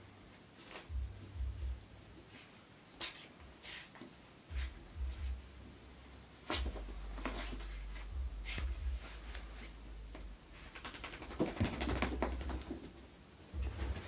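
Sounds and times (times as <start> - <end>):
fur scuffing on fabric: 6.5 - 9.8.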